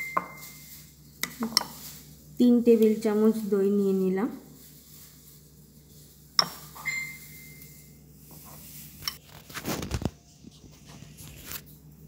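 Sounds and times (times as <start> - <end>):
metal spoon scraping bowls: 0.0 - 2.2, 5.8 - 9.2.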